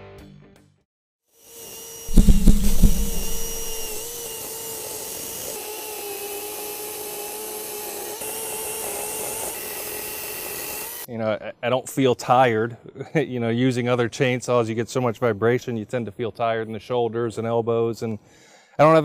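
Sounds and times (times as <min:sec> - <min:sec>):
electric chainsaw cutting wood: 0:01.6 - 0:11.0
loud low knocks: 0:02.1 - 0:04.2.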